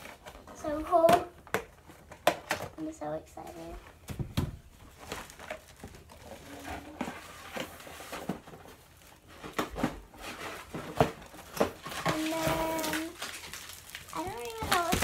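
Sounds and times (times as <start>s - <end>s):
cardboard boxes knocking and rustling: 4.0s - 13.3s, 14.2s - 15.0s.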